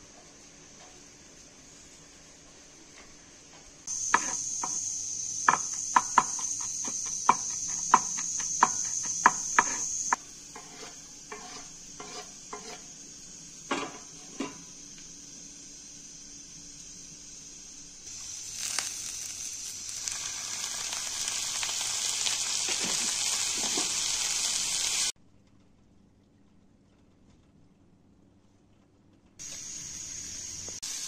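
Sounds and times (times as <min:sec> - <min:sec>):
high insect chirr: 0:03.8 - 0:25.1, 0:29.4 - 0:31.0.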